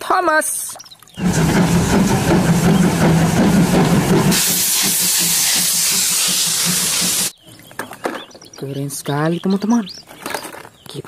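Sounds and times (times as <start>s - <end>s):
loud hiss of steam: 1.2s - 7.4s
steam locomotive rhythmic rumble: 1.2s - 7.4s.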